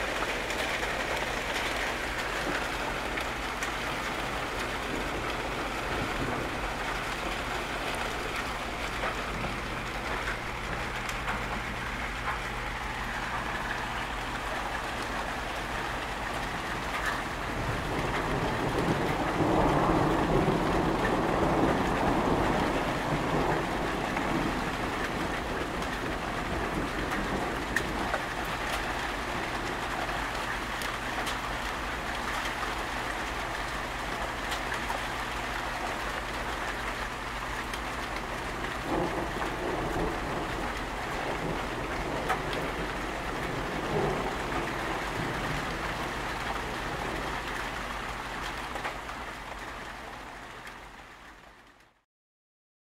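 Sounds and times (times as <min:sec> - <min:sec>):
rain falling: 0:00.0 - 0:52.0.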